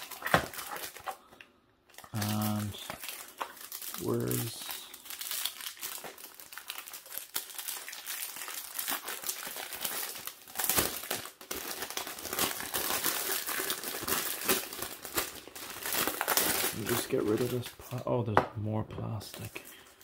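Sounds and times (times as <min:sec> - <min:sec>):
plastic packaging crinkling: 0:00.0 - 0:18.1.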